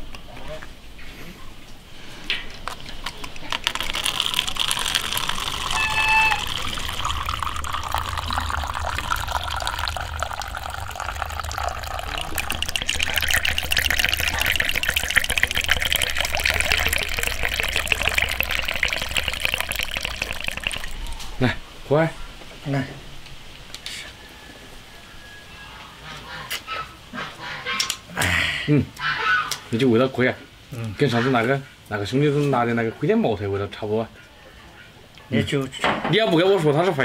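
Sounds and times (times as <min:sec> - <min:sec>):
liquid pouring into plastic cup: 0:02.6 - 0:21.4.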